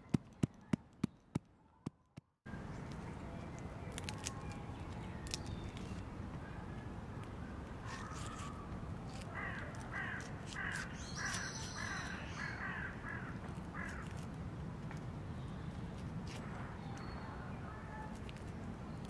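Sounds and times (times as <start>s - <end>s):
plant stems clicking and rustling: 2.8s - 6.1s, 7.8s - 10.9s
crow cawing: 9.4s - 14.0s.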